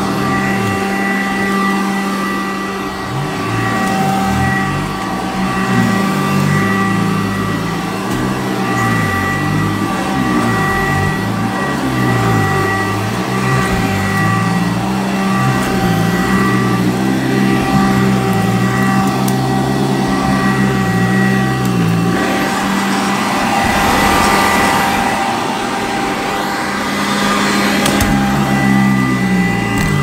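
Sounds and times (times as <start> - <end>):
vacuum motor whine: 0.0 - 30.0
low hum: 20.6 - 29.0
rushing air: 22.2 - 27.8.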